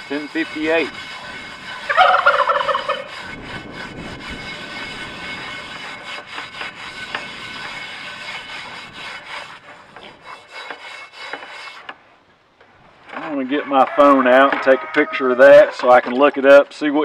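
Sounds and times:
scratchy scrubbing of skillet: 0:00.0 - 0:12.0.

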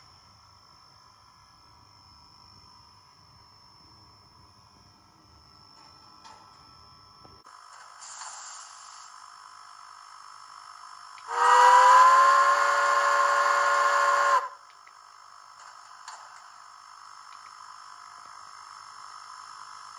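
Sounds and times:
steam hissing: 0:07.7 - 0:09.2, 0:11.2 - 0:14.6
steam whistle blast: 0:11.2 - 0:14.6.

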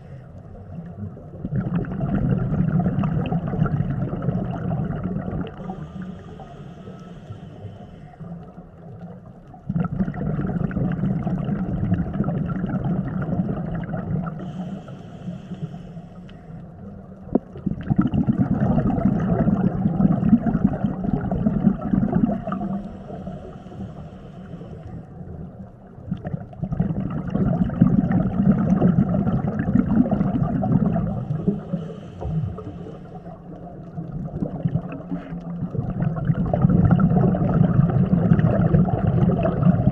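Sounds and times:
exhaled bubbles gurgling underwater: 0:00.0 - 0:39.9
regulator inhalation hiss: 0:05.6 - 0:08.3, 0:14.4 - 0:16.6, 0:22.8 - 0:25.0, 0:31.3 - 0:33.3.

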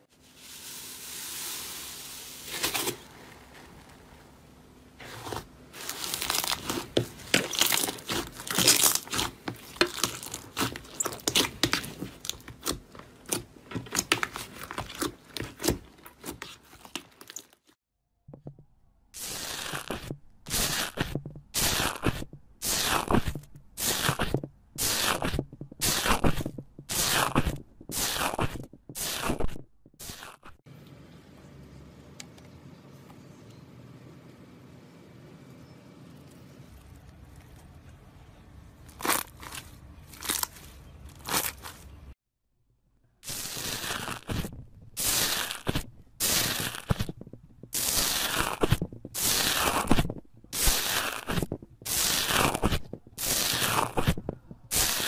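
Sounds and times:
slime crackling and popping: 0:05.8 - 0:17.6, 0:19.2 - 0:30.4, 0:43.2 - 0:55.0.

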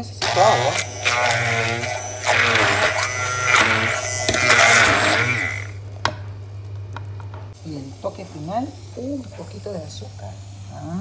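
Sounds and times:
immersion blender whirring: 0:00.0 - 0:05.8.

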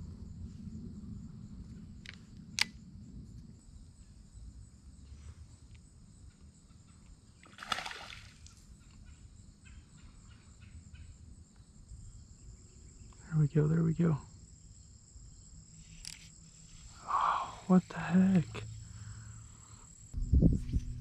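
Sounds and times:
crickets chirping: 0:00.0 - 0:21.0
splash on water: 0:07.4 - 0:08.5.

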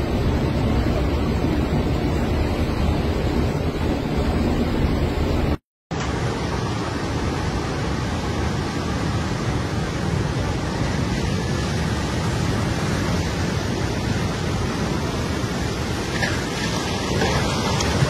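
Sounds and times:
rushing seawater: 0:06.0 - 0:18.0.

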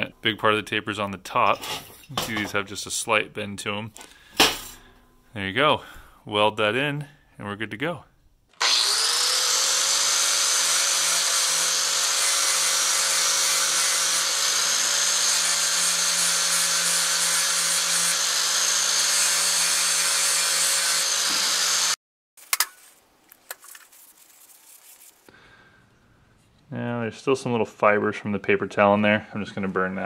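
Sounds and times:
angle grinder grinding metal: 0:08.6 - 0:22.0.

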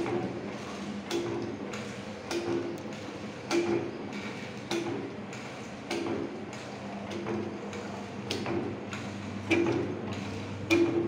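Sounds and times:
cutting machine clacks: 0:10.7 - 0:11.0.

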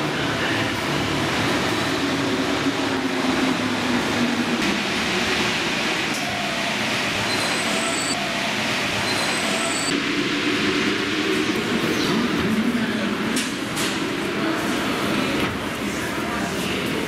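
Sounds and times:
underground train running: 0:00.0 - 0:17.0.

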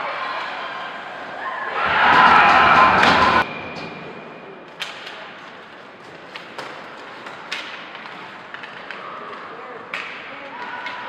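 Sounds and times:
hockey sticks clacking on puck: 0:04.7 - 0:11.0.

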